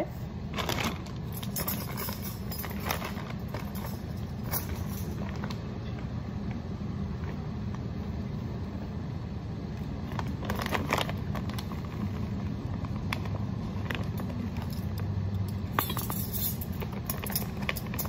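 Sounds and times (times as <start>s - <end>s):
low room rumble: 0.0s - 18.0s
plastic bag crinkling: 0.5s - 5.6s, 10.1s - 14.6s.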